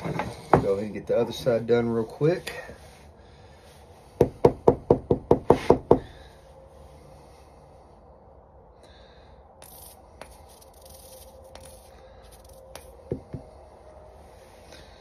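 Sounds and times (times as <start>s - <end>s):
faint scrapes: 9.6s - 15.0s.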